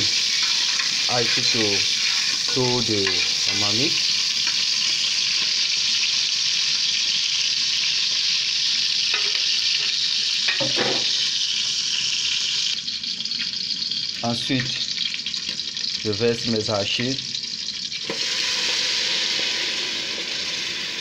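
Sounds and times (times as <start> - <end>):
oil sizzling loudly: 0.0 - 21.0.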